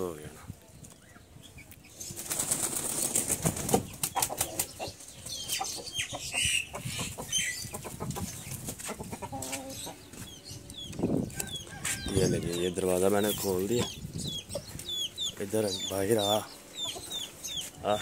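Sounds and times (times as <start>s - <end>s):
bird wings flapping: 2.2s - 4.7s.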